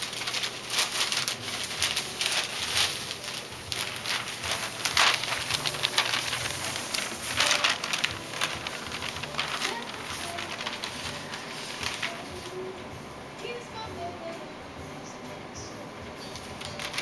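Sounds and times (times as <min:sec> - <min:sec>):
newspaper rustling: 0:00.0 - 0:12.8, 0:16.3 - 0:17.0.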